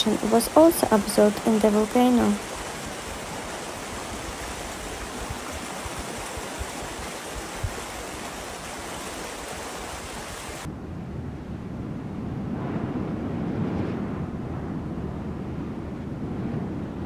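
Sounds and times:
rushing hiss of lava flow: 0:02.0 - 0:10.7.

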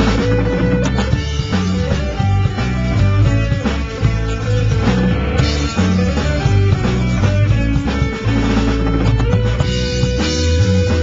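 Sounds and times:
drum kit strikes: 0:00.0 - 0:11.0
electric guitar: 0:00.0 - 0:11.0.

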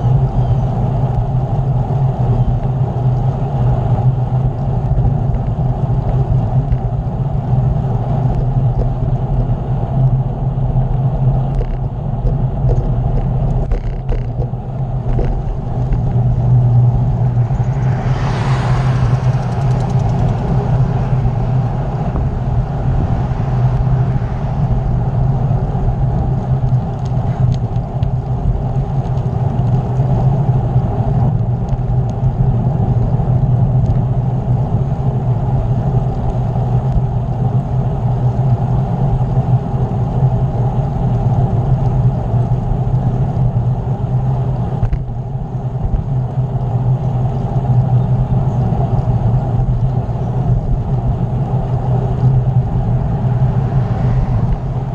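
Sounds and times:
road noise: 0:00.0 - 0:54.9
wind rushing over microphone: 0:00.0 - 0:54.9.

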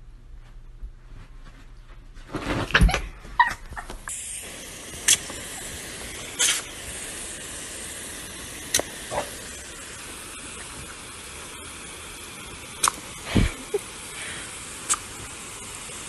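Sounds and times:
water hissing from hose nozzle: 0:04.1 - 0:16.0.

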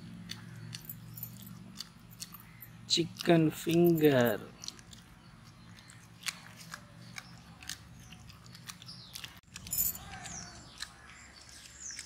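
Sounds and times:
crunching crispy food: 0:04.5 - 0:12.0.

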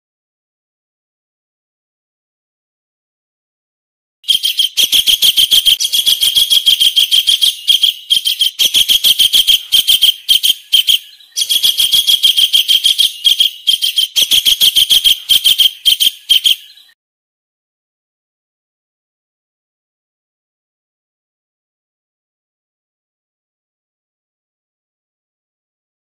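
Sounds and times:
kingfisher call: 0:04.3 - 0:16.9.

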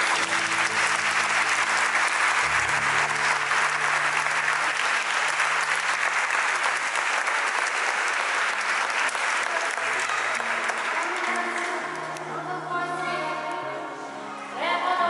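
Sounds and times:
low instrumental music: 0:00.0 - 0:06.0
crowd applauding: 0:00.0 - 0:12.2.

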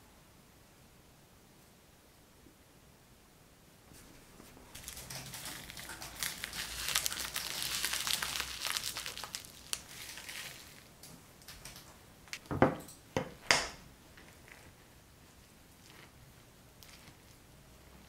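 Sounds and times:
chili flakes crackling between fingers: 0:04.7 - 0:12.4, 0:14.1 - 0:18.0.

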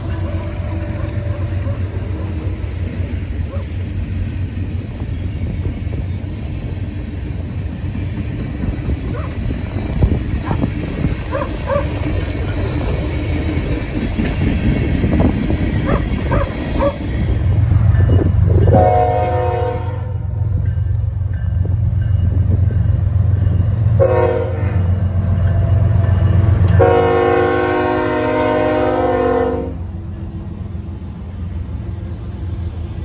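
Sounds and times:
steel wheels clacking over rails: 0:00.0 - 0:18.8
freight train rumbling past: 0:00.0 - 0:33.0
horn-like tone: 0:18.7 - 0:20.2, 0:24.0 - 0:24.8, 0:26.7 - 0:29.9.

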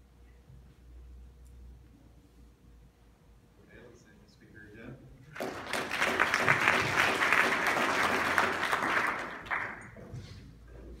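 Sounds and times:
audience applauding: 0:05.3 - 0:10.0.

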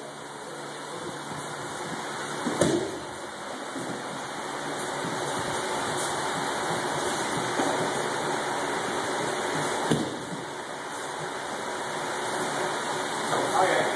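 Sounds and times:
body thumping onto padded mat: 0:01.9 - 0:03.1, 0:09.6 - 0:10.5.

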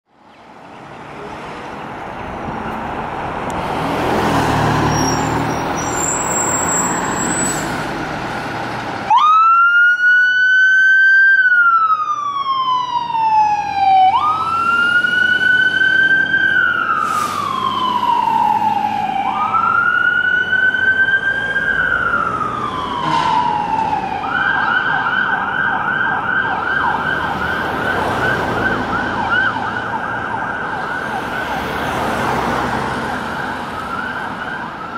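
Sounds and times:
fire engine running: 0:00.5 - 0:34.9
siren wailing: 0:09.1 - 0:34.9.

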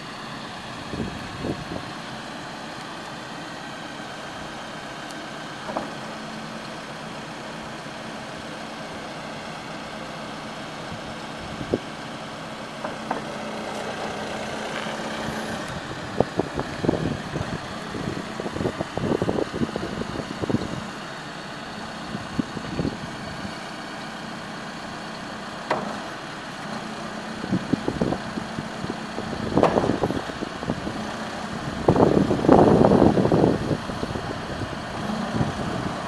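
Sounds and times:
diesel engine running: 0:00.0 - 0:36.0
backhoe arm clunks and knocks: 0:05.6 - 0:06.2, 0:12.8 - 0:16.3, 0:25.6 - 0:28.5, 0:29.2 - 0:31.2.

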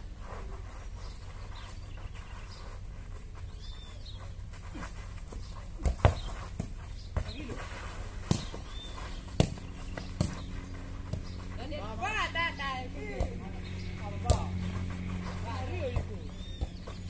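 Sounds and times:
steady low hum: 0:00.0 - 0:17.0
football kick thuds: 0:05.7 - 0:07.6, 0:08.2 - 0:10.5, 0:14.2 - 0:14.6.

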